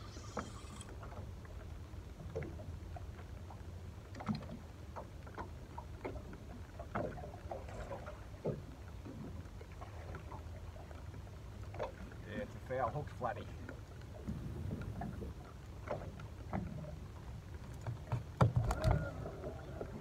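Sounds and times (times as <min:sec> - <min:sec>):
water lapping against boat hull: 0:00.0 - 0:20.0
wind rumble on microphone: 0:14.2 - 0:15.4.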